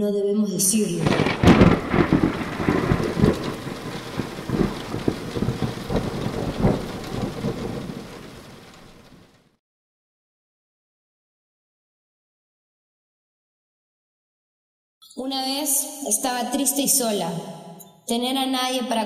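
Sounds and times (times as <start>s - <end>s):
thunder rumbling: 0.7s - 9.5s
steady rain: 0.9s - 9.6s.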